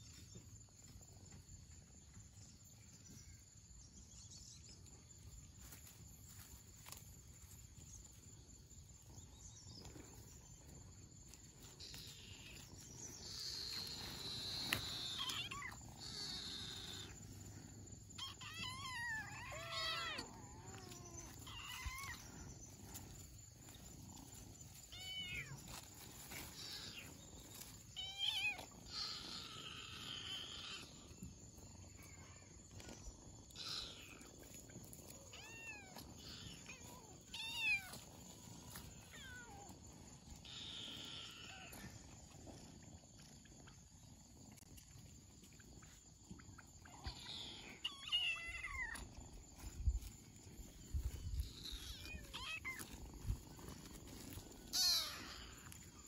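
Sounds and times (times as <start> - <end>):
kittens meowing: 11.4 - 31.2, 33.5 - 42.8, 46.6 - 56.0.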